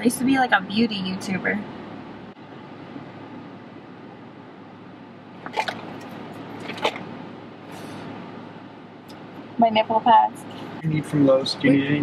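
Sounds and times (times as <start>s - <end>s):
car cabin hum: 0.0s - 12.0s.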